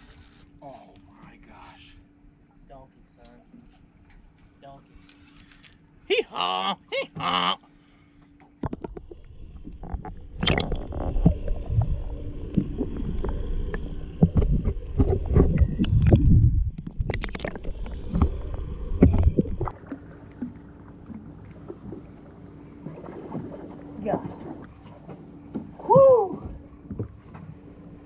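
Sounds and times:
steady low hum: 0:00.0 - 0:28.0
muffled underwater water rushing: 0:08.6 - 0:28.0.

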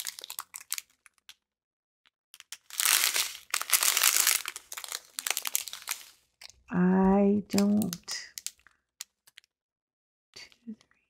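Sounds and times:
plastic bags crinkling: 0:00.0 - 0:01.4, 0:02.4 - 0:06.6, 0:07.5 - 0:09.5.

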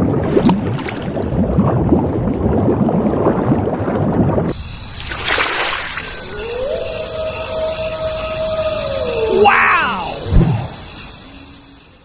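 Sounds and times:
underwater bubbling: 0:00.0 - 0:07.4.

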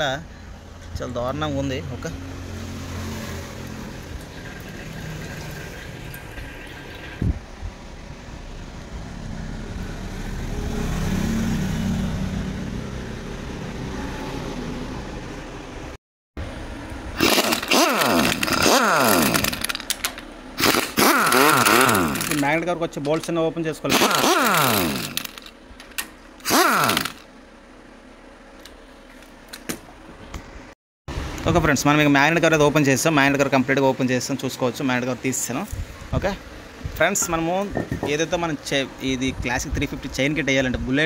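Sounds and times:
socket wrench ratcheting: 0:17.2 - 0:22.5, 0:23.9 - 0:27.2.

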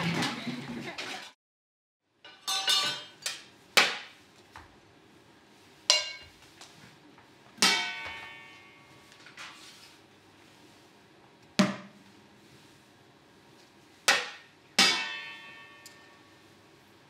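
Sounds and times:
metal pots and pans clanging: 0:02.3 - 0:03.5, 0:05.9 - 0:06.3, 0:07.6 - 0:09.6, 0:14.1 - 0:16.2.

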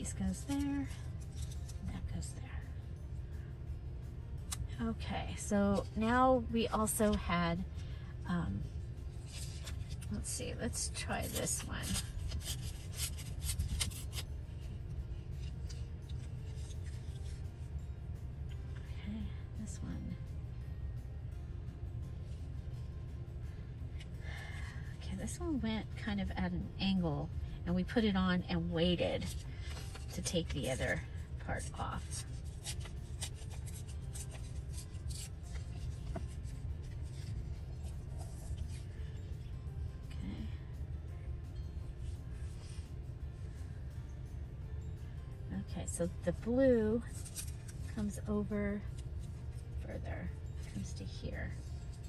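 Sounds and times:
steady low hum: 0:00.0 - 0:52.0
paper scraps rustling: 0:11.2 - 0:14.2, 0:29.3 - 0:31.0, 0:31.7 - 0:36.4, 0:47.1 - 0:47.8.

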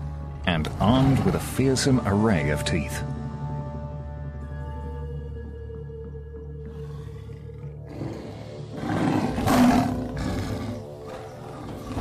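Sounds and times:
big cat growling roar: 0:00.6 - 0:01.8, 0:06.7 - 0:12.0.

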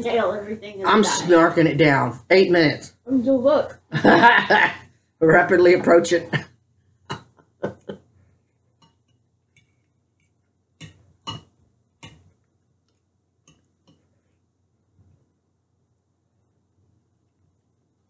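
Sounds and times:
fork clinking on a plate: 0:11.3 - 0:11.5.

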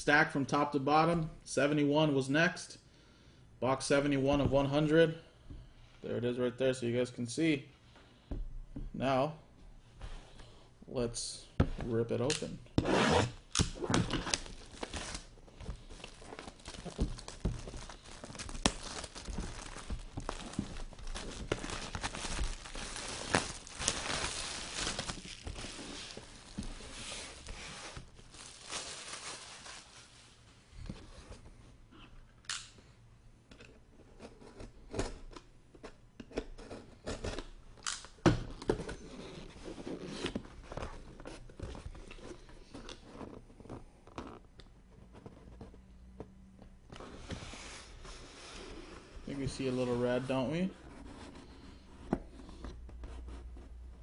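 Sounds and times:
wrapping tearing and crinkling: 0:13.2 - 0:30.4
cardboard rustles: 0:14.0 - 0:30.3.

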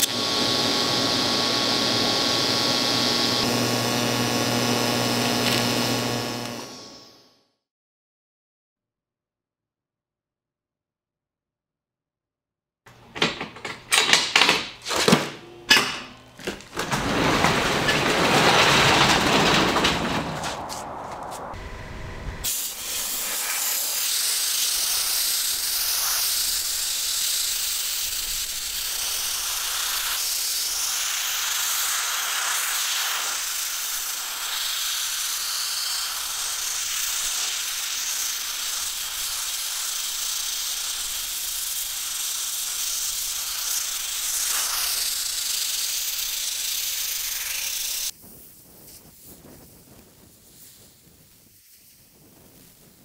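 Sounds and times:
rumbling noise: 0:16.2 - 0:22.6
aerosol spray can hissing: 0:22.4 - 0:48.2.

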